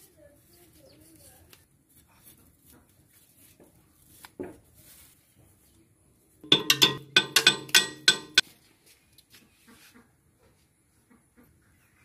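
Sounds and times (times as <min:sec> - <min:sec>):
steel bar clanking on metal: 0:06.4 - 0:08.4.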